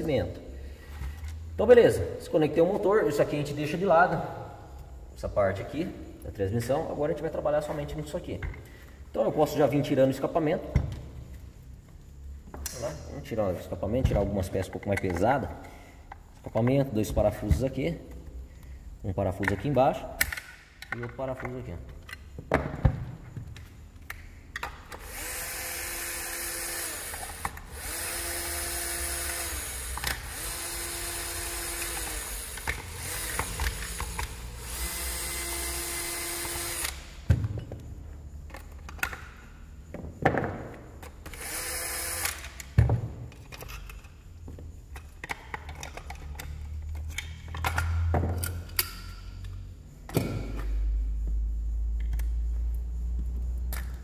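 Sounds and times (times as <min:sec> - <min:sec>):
electric drill motor whine: 0:25.0 - 0:37.1, 0:41.3 - 0:42.6
metal parts clicking and knocking: 0:26.3 - 0:35.1, 0:38.5 - 0:39.5, 0:41.0 - 0:44.2, 0:44.9 - 0:50.7.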